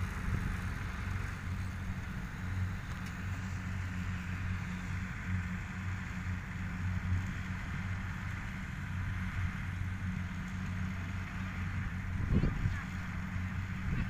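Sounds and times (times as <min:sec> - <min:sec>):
low engine drone: 0:00.0 - 0:14.0.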